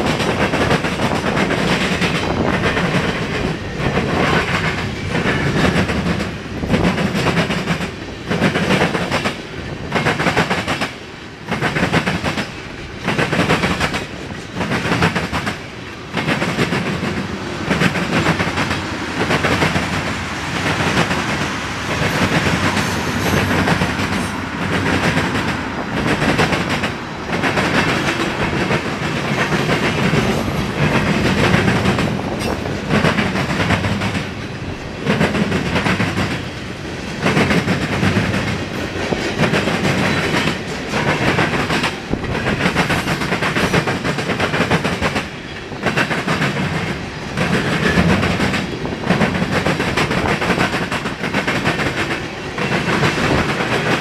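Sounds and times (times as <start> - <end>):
freight train wheels rumbling: 0.0 - 54.0.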